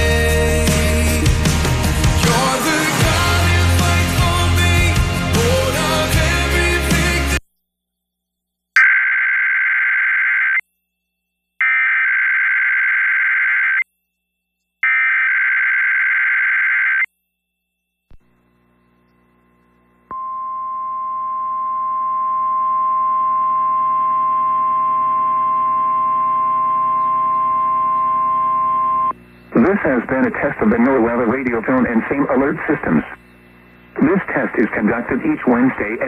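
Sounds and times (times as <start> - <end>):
steady alarm tone: 8.8 - 10.6, 11.6 - 13.8, 14.8 - 17.8, 20.2 - 30.1
faint low hum: 17.3 - 36.0.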